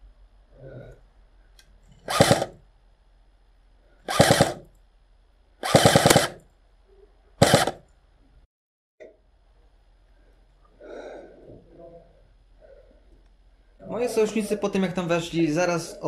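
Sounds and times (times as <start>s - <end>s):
airsoft gun full-auto bursts: 2.1s - 2.6s, 4.1s - 4.7s, 5.6s - 6.4s, 7.4s - 7.8s.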